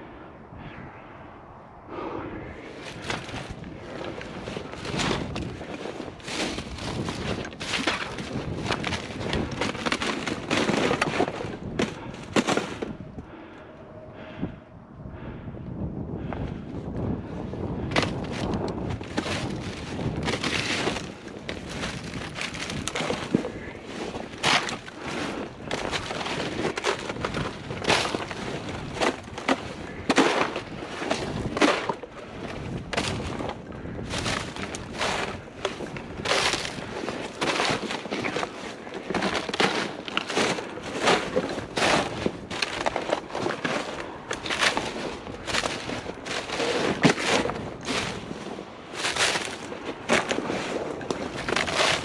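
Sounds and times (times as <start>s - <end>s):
heavy footsteps: 1.9s - 13.0s, 17.8s - 52.0s.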